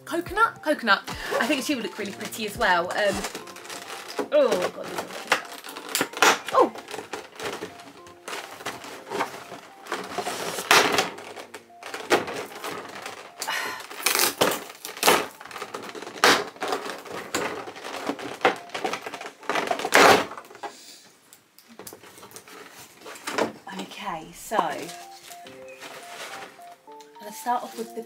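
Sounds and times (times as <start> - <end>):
plastic packaging crinkling: 1.1 - 28.0.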